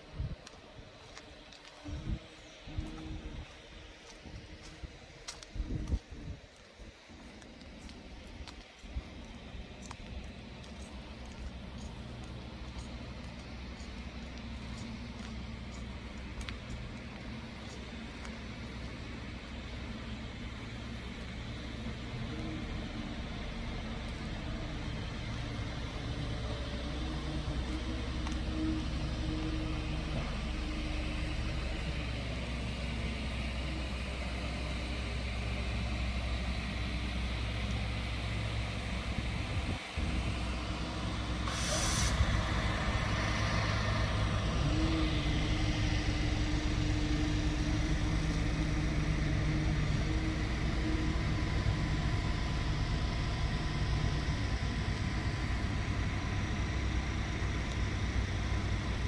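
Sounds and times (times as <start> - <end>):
electric train equipment humming: 0.0 - 59.0
steady drone: 0.0 - 59.0
air hissing: 41.3 - 44.7.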